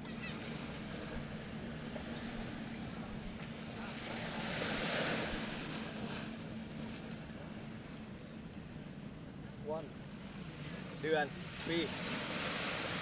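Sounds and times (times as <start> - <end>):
surf: 0.0 - 13.0
wind: 0.0 - 13.0.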